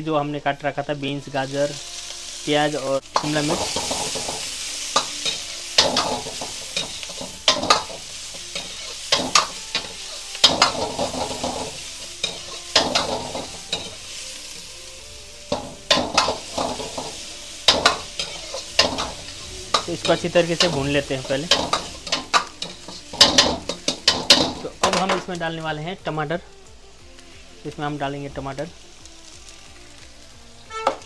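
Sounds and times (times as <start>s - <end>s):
vegetables sizzling in oil: 0.0s - 31.0s
metal ladle scraping a wok: 1.4s - 25.0s, 30.7s - 31.0s.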